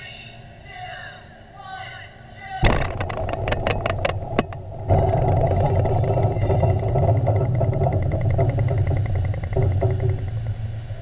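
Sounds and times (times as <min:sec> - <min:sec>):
deep steady rumble: 0:02.2 - 0:11.0
sharp cracks: 0:02.6 - 0:11.0
underwater explosion: 0:02.6 - 0:11.0.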